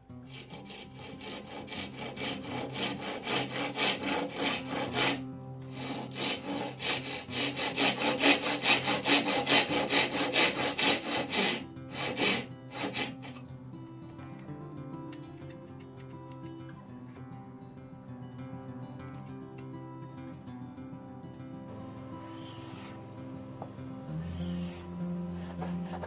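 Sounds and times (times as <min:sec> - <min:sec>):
handsaw cutting wood: 0:00.3 - 0:13.4, 0:22.0 - 0:23.1, 0:24.1 - 0:26.0.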